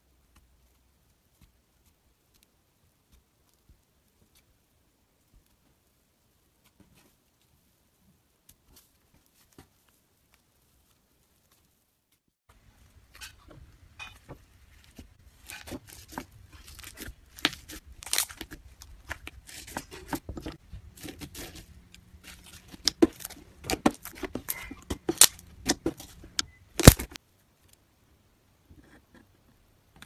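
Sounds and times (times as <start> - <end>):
slime crackling and popping: 15.4 - 20.2, 20.8 - 27.2.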